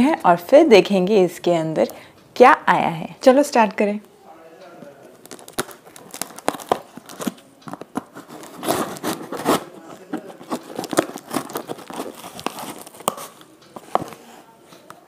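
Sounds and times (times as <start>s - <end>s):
tape and cardboard crinkling: 5.0s - 14.3s
scissors cutting packing tape: 5.1s - 14.0s.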